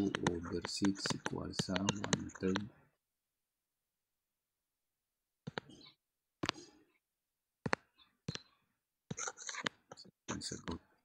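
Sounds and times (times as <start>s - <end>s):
sharp clicks: 0.0s - 2.7s.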